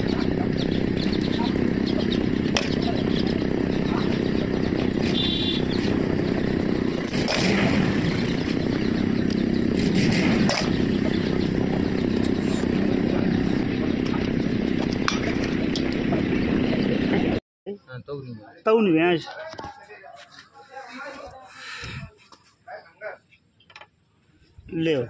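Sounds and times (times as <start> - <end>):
engine running: 0.0 - 17.4.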